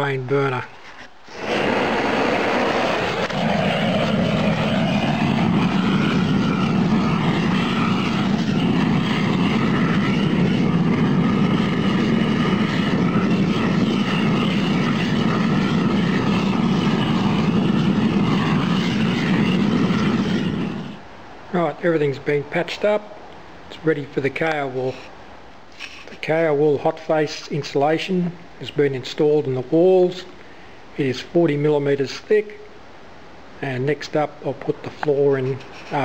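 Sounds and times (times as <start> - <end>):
torch flame rushing: 1.2 - 23.1.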